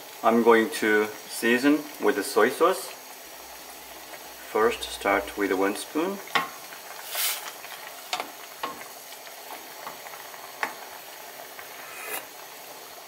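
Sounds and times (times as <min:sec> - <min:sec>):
soup boiling and bubbling: 0:00.0 - 0:13.0.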